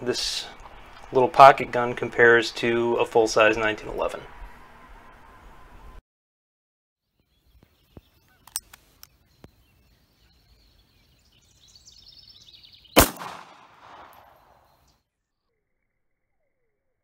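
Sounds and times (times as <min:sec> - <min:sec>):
pistol shot with echo: 0:13.0 - 0:14.6.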